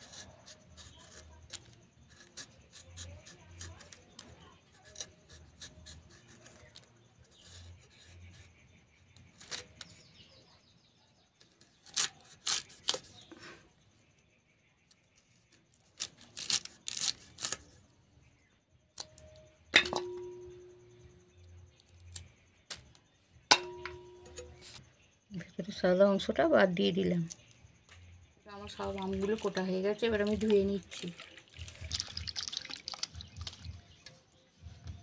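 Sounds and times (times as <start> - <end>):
knife scraping mango: 0.0 - 10.4, 11.4 - 13.6, 15.0 - 17.9, 23.6 - 24.8
piece clanging into metal bowl: 19.7 - 20.7, 23.5 - 24.6.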